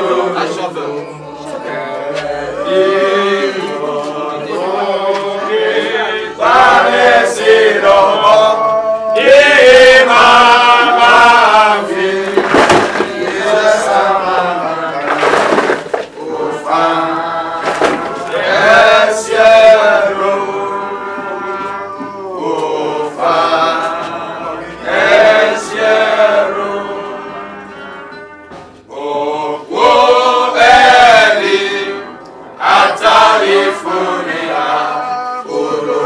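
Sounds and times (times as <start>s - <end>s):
group singing a hymn: 0.0s - 36.0s
earth thudding into grave: 12.4s - 13.3s, 15.0s - 16.0s.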